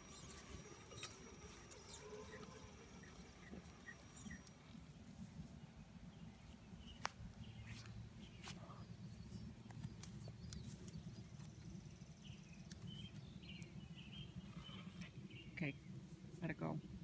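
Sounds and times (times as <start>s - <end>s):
faint high chirps: 0.0s - 4.8s.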